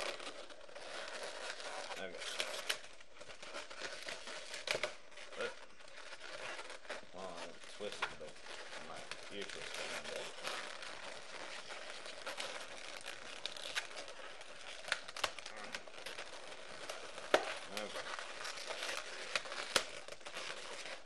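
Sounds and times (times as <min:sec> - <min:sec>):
balloons rubbing and squeaking: 0:00.0 - 0:21.0.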